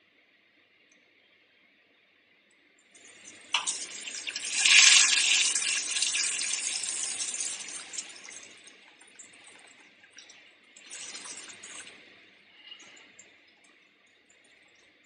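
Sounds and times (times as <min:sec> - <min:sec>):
toilet flushing: 0:03.0 - 0:13.2.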